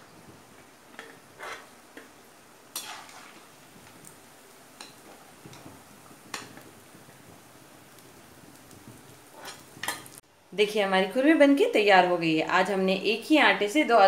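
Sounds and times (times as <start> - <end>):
frying oil sizzling: 0.0 - 11.8
metal spoon scraping a pan: 1.0 - 1.7, 2.7 - 3.5, 9.3 - 10.1.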